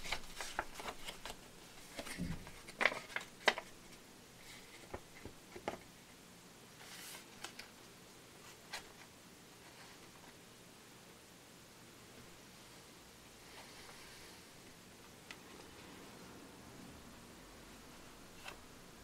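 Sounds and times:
light paper clicks: 0.0 - 3.7
paper folding and rustling: 0.0 - 5.9, 6.8 - 7.8.

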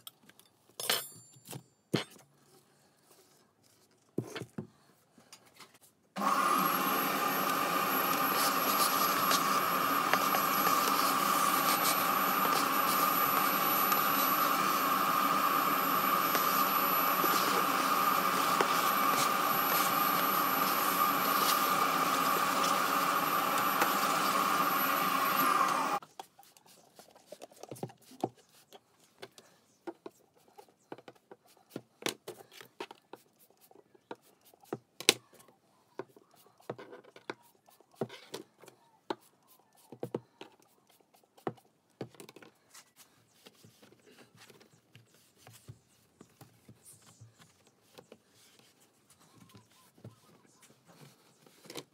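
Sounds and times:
cloth wiping plastic frame: 6.2 - 25.4
vacuum cleaner whining: 6.2 - 26.0.

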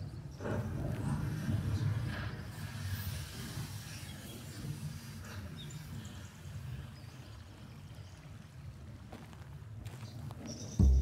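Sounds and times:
steady low rumble: 10.8 - 11.0.

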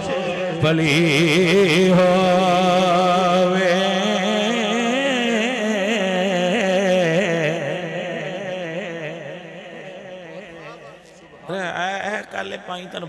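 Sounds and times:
man singing through a microphone: 0.0 - 9.2.

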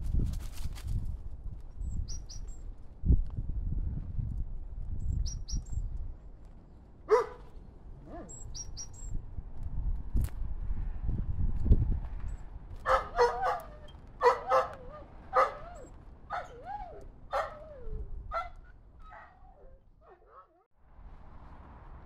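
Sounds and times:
dog crying: 12.9 - 20.6.

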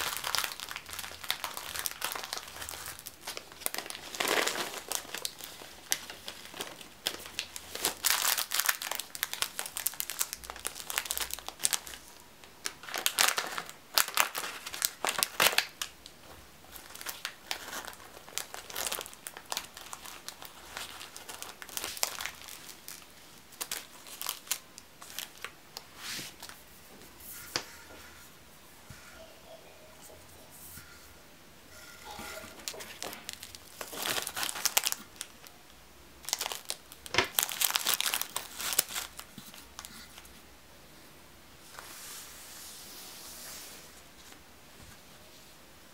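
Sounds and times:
plastic bags crinkling: 0.0 - 26.6, 32.0 - 35.6, 36.2 - 40.3.

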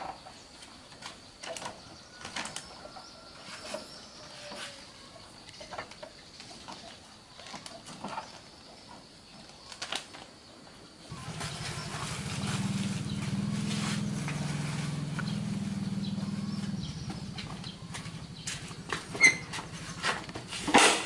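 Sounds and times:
handling clicks and rustles: 11.1 - 21.0
small engine idling: 11.1 - 21.0.

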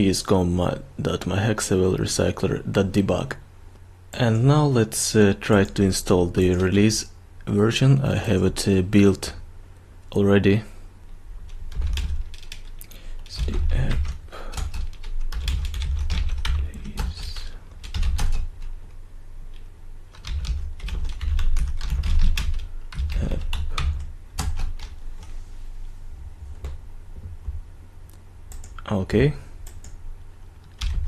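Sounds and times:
typing on keyboard: 11.5 - 18.7, 19.5 - 25.0, 30.7 - 31.0.

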